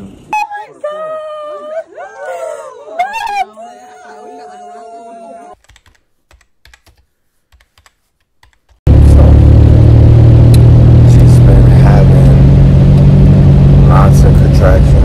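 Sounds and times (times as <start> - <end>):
soft typing clicks: 5.6 - 8.8.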